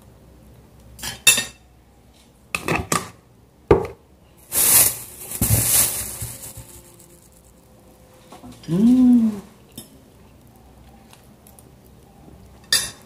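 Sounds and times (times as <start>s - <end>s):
cutlery clinking on glass bowl: 12.6s - 13.0s.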